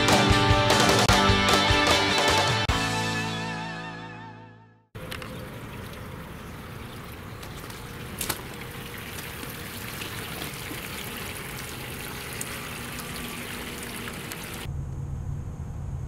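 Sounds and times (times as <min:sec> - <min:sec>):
hose water splashing into metal hull: 0:05.0 - 0:14.7.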